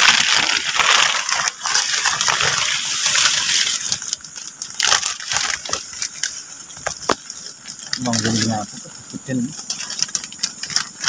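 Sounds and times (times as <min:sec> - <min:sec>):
leafy branches rustling: 0:00.0 - 0:11.0.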